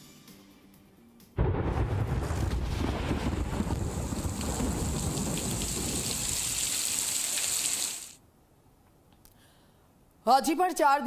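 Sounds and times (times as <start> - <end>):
thunder rumbling: 1.4 - 7.8
heavy rain hissing: 3.5 - 8.2.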